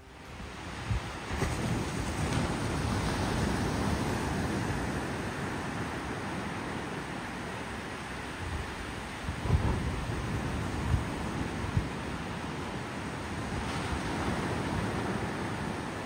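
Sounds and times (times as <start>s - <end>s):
ocean surf breaking on beach: 0.0s - 16.0s
wind rumbling on microphone: 0.0s - 16.0s.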